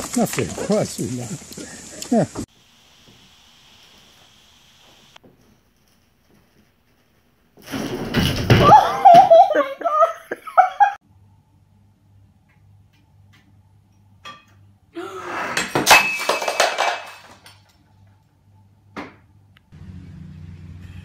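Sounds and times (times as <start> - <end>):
ceramic bowl breaking on floor: 15.6 - 17.7.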